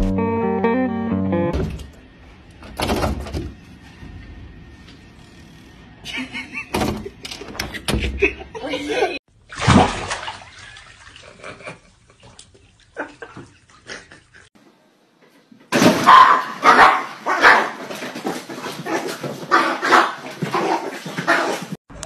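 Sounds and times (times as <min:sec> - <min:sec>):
small dog barking: 0:16.0 - 0:17.8.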